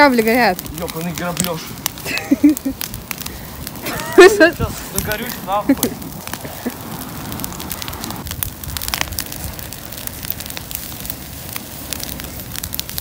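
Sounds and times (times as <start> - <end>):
fire crackling and popping: 0.0 - 13.0
flames roaring: 0.0 - 13.0.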